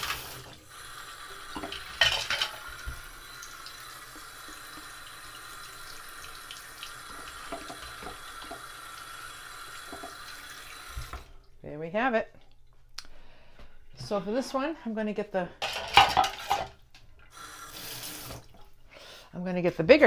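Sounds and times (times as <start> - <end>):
tap running into sink: 7.1 - 8.7, 9.8 - 11.3.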